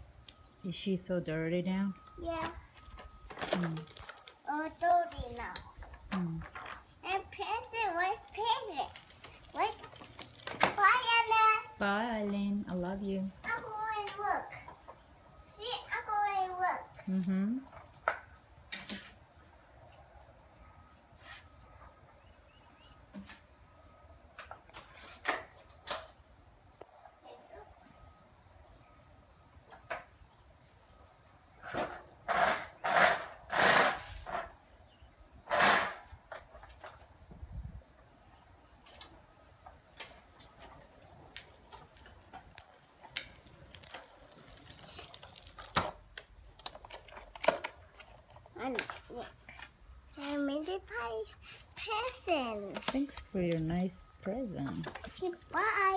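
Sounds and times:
crickets chirping: 0.0 - 55.9
tricycle rattling on concrete: 0.7 - 15.0, 38.8 - 55.9.

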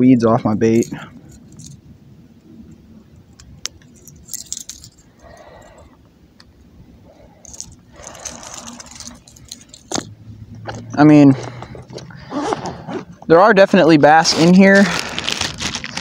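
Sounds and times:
fishing tackle clicks and rattles: 0.7 - 1.8, 2.7 - 6.5, 7.4 - 12.1
soft rustling: 7.0 - 13.3.

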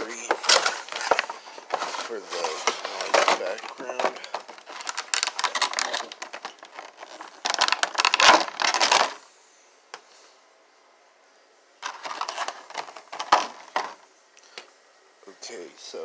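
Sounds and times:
plastic packaging crinkling: 0.0 - 9.2, 11.8 - 14.0.

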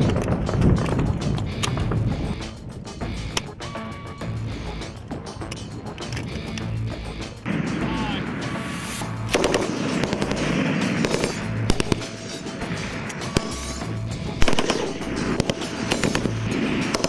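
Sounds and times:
background music with low beat: 0.0 - 17.0
machine guns firing: 9.3 - 13.8, 14.4 - 17.0.

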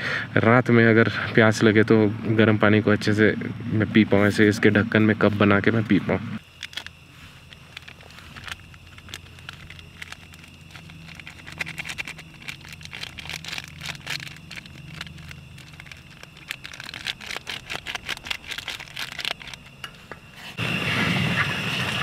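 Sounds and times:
gas stove burning: 6.4 - 22.0
paper sachet rustling: 6.6 - 19.8.

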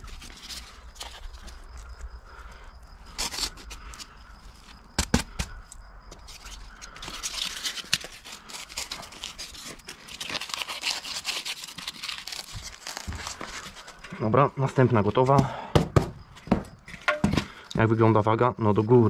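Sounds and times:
foam board scraping and crackling: 3.1 - 4.0, 6.2 - 14.1
sharp knocks on board: 15.7 - 17.4.

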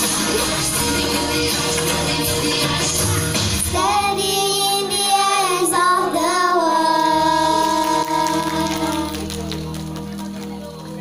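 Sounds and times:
backing track: 0.0 - 11.0
girls singing: 0.6 - 9.1.

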